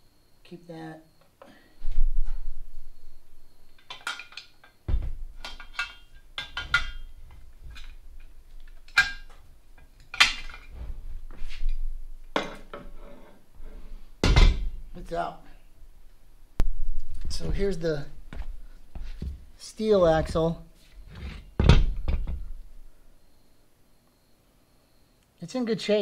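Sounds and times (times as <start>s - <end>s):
metallic clinks and clanks: 3.7s - 10.7s.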